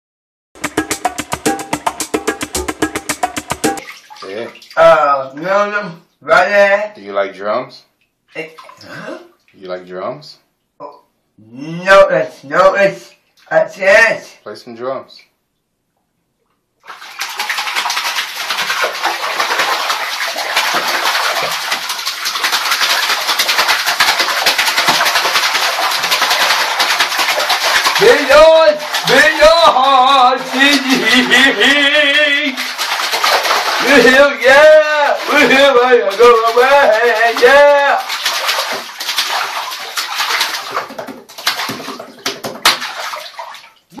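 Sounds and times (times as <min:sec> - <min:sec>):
hands splashing water in bathtub: 0:00.6 - 0:05.0, 0:08.4 - 0:09.0, 0:16.8 - 0:44.0.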